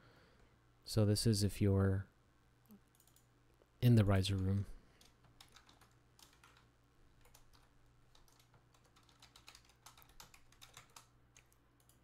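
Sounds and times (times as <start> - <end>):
low electrical hum: 0.0 - 12.0
keyboard typing: 2.9 - 3.3, 4.2 - 12.0.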